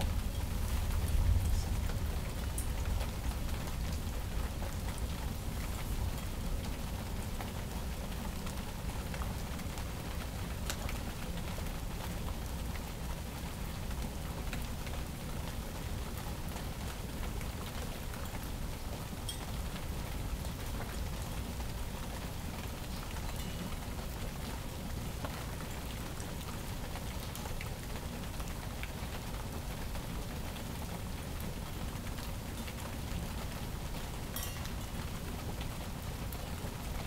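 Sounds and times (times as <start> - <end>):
steady rain hiss: 0.0 - 37.0
raindrop ticks: 0.3 - 12.9, 21.6 - 30.0, 30.6 - 37.0.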